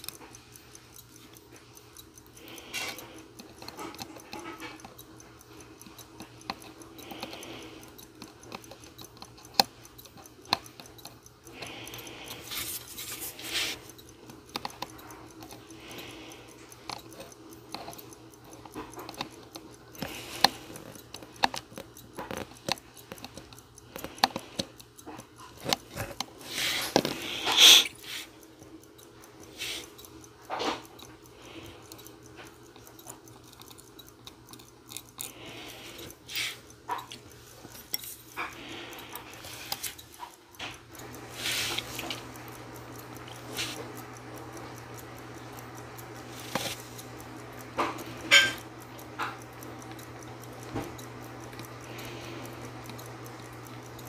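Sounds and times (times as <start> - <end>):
tweezers clicking and scraping: 0.0 - 54.0
clothes dryer humming: 25.4 - 32.7, 35.3 - 53.9.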